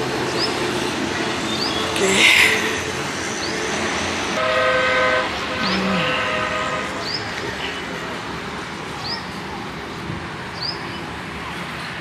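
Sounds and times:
highway traffic: 0:00.0 - 0:12.0
multi-tone vehicle horn: 0:04.4 - 0:07.9.

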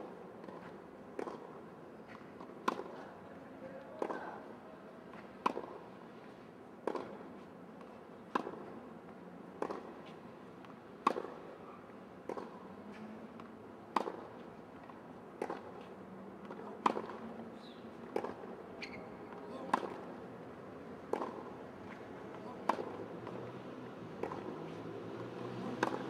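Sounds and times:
tennis ball hit with racket: 0:00.4 - 0:03.0, 0:05.1 - 0:05.8, 0:06.8 - 0:08.8, 0:09.6 - 0:10.2, 0:11.0 - 0:11.5, 0:12.2 - 0:12.6, 0:13.4 - 0:20.2, 0:21.0 - 0:26.0.

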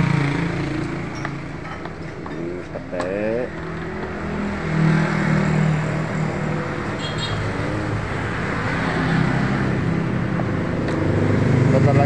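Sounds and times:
car and motorbike engines: 0:00.0 - 0:12.0
road noise: 0:00.0 - 0:12.0.

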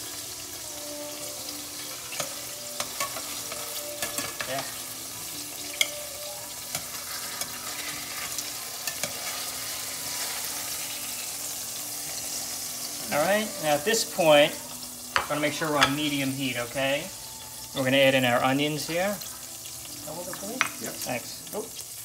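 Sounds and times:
chicken sizzling in frying pan: 0:00.0 - 0:22.0
tongs clicking on pan: 0:01.8 - 0:04.8, 0:05.6 - 0:09.5.

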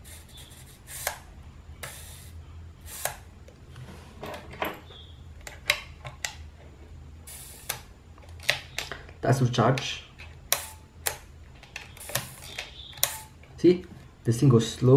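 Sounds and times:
short scraping rubs: 0:00.0 - 0:01.2.

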